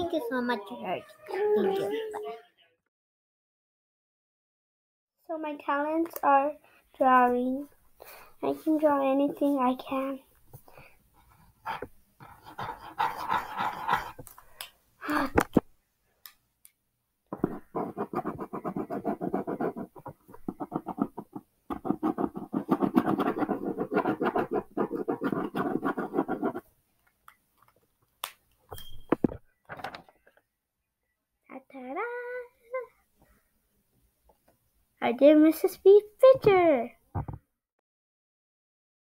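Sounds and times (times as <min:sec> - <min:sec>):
drawing tool scratching on paper: 0:11.2 - 0:14.3, 0:17.4 - 0:26.7.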